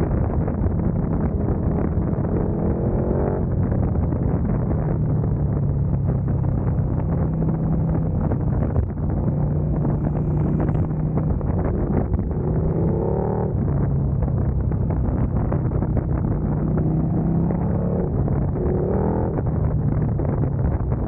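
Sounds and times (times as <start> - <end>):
motorcycle engine running: 0.0 - 21.0
wind rushing over microphone: 0.0 - 21.0.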